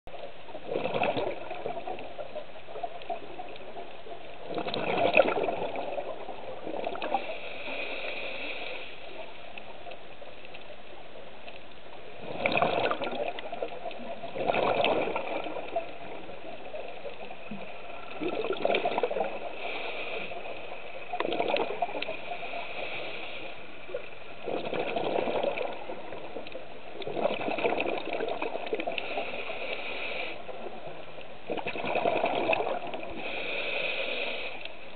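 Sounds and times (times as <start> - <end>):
exhaled bubbles underwater: 0.1 - 7.6, 12.1 - 23.0, 23.8 - 29.5, 30.4 - 33.6
regulator hiss: 29.0 - 30.5, 33.2 - 34.8.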